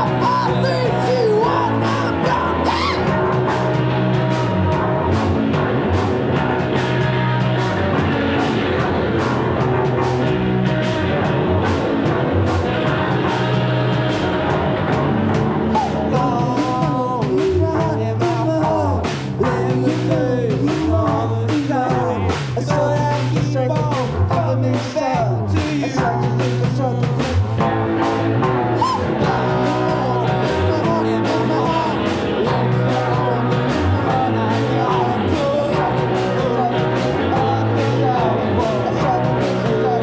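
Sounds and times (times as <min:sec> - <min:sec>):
person singing: 0:00.0 - 0:04.9, 0:15.6 - 0:27.4, 0:28.5 - 0:40.0
rock band playing: 0:00.0 - 0:40.0.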